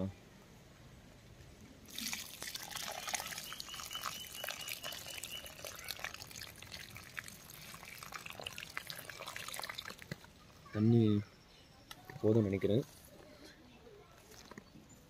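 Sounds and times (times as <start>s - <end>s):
water splashing onto soil: 1.8s - 10.3s.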